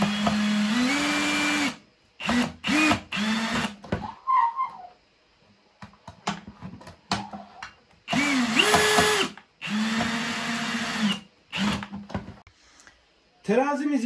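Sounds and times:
cordless drill running: 0:00.0 - 0:03.8, 0:08.1 - 0:11.9.

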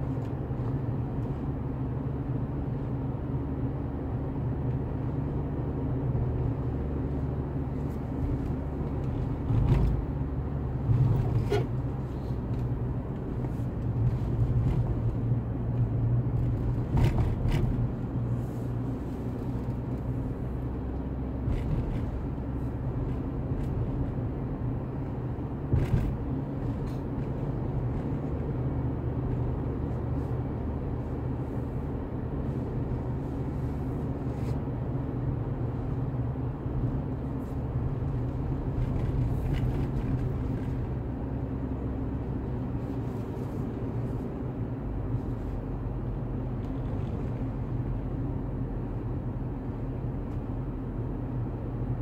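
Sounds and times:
car engine and tyre rumble: 0:00.0 - 0:52.0.

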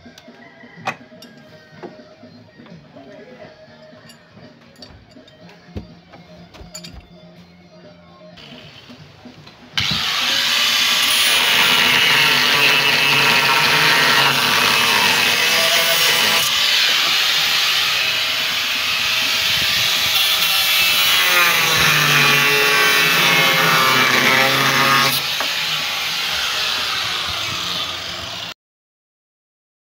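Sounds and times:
power tool cutting wood: 0:08.4 - 0:09.0, 0:09.8 - 0:28.6.

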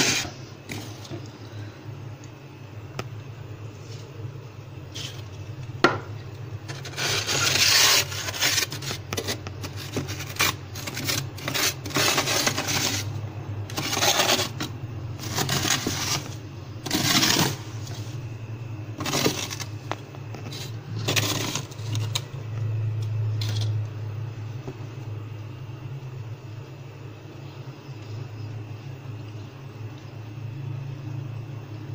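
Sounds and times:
plastic ruler scraping frost: 0:00.0 - 0:00.9, 0:06.7 - 0:13.1, 0:13.7 - 0:18.0.

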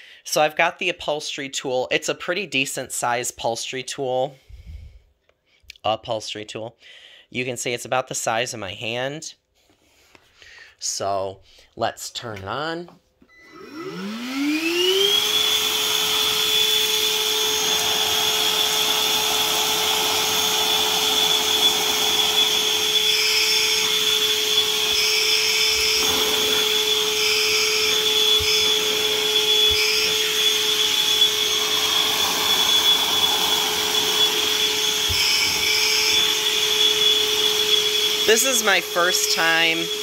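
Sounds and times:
vacuum cleaner whining: 0:13.3 - 0:40.0
nozzle sucking over carpet: 0:13.6 - 0:40.0.

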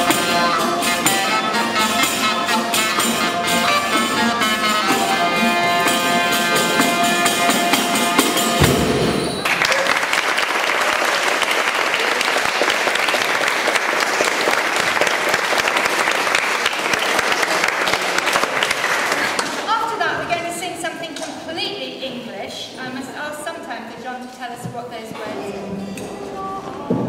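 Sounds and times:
folk band with wind and fiddle: 0:00.0 - 0:09.5
audience applauding: 0:08.1 - 0:19.7.

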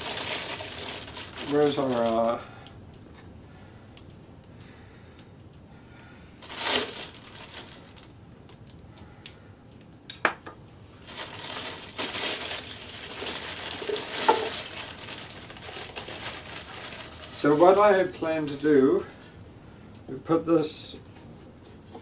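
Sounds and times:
plastic packaging crinkling: 0:00.0 - 0:02.5, 0:06.4 - 0:08.8, 0:11.0 - 0:18.6.

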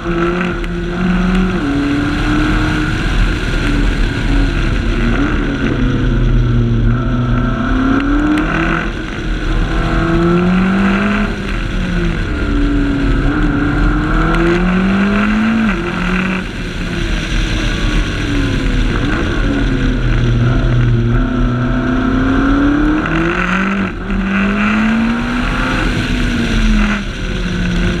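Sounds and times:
sports car engine revving: 0:00.0 - 0:28.0
wind and tyre noise: 0:00.0 - 0:28.0.

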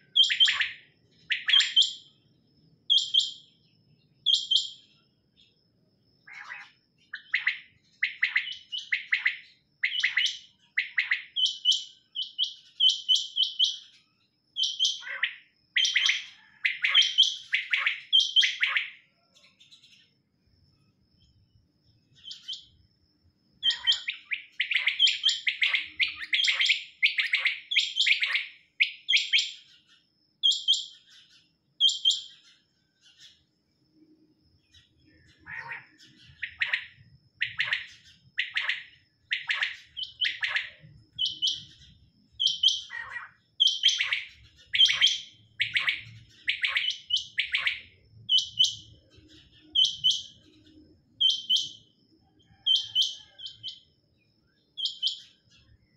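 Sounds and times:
quails calling: 0:23.6 - 0:29.4, 0:35.3 - 0:41.6.

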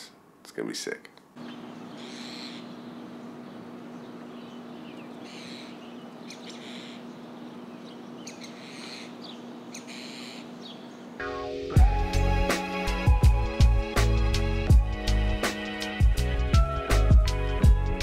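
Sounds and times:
steady low hum: 0:01.3 - 0:12.1
birds chirping and calling: 0:01.4 - 0:11.4.

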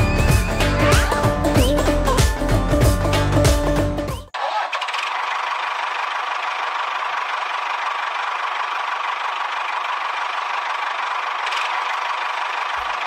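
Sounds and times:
model tractor motor whirring: 0:04.4 - 0:13.0.

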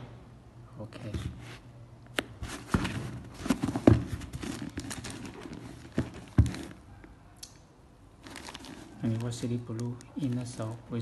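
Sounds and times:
rustling: 0:02.4 - 0:06.8, 0:08.2 - 0:11.0.

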